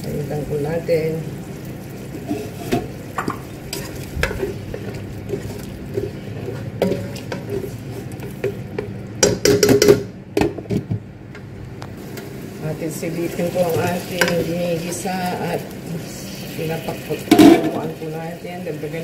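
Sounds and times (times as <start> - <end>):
spatula scraping a pot: 2.1 - 2.9, 3.7 - 8.6.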